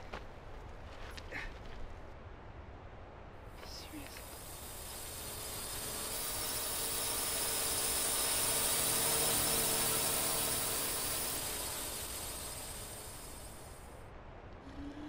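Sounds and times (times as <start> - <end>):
aircraft passing overhead: 3.6 - 14.0.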